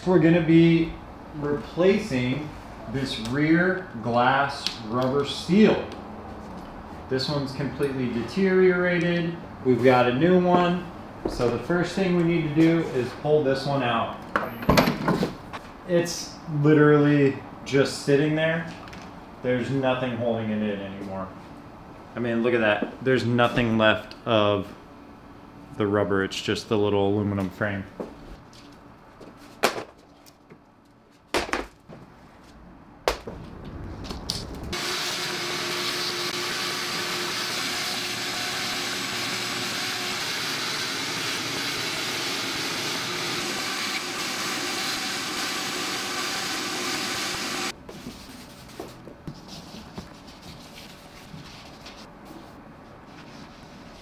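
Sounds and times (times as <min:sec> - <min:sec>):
shop vacuum running: 0:34.7 - 0:47.7.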